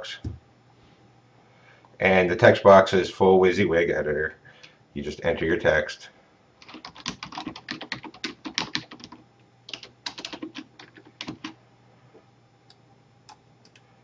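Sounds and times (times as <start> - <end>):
typing on computer keyboard: 6.6 - 11.6.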